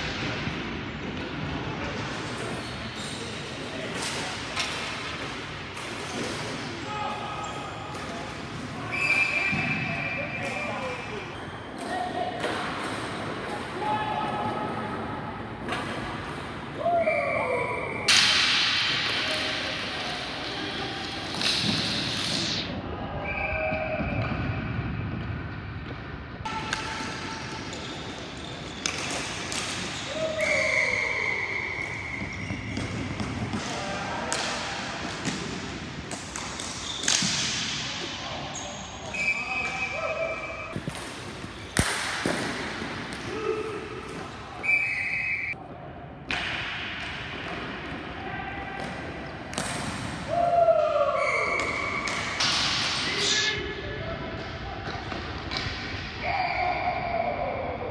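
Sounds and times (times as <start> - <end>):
players' voices: 0.1 - 24.4, 26.5 - 57.9
hockey sticks knocking ball: 26.5 - 30.7.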